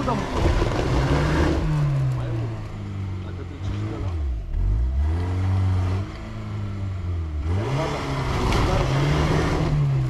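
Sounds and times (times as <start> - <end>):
spinning tyres flinging mud: 0.0 - 4.1
car engine revving hard: 0.0 - 10.0.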